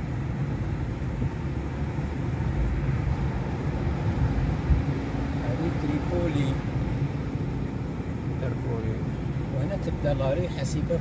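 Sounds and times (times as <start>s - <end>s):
car engine and tyre noise: 0.0s - 11.0s.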